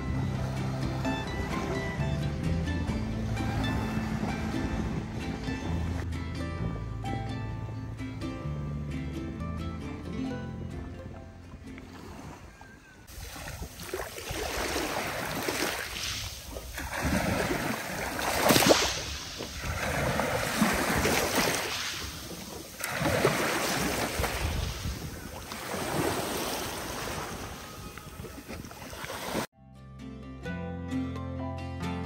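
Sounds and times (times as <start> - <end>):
sea water sloshing and splashing: 11.7 - 29.5.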